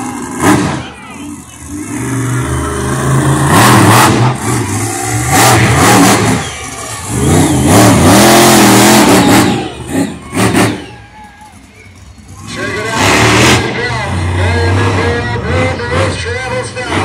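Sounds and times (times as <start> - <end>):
monster truck engine revving: 0.0 - 17.0.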